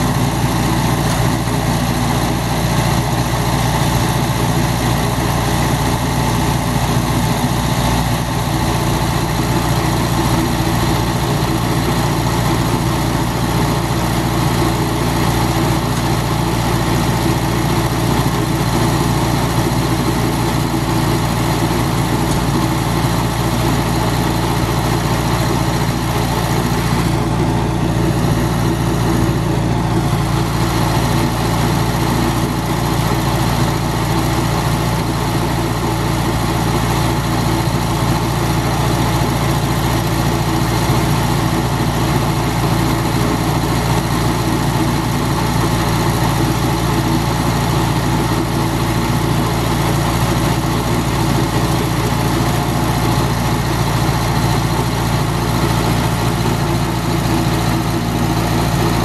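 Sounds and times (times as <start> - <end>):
stump grinder engine running: 0.0 - 59.0.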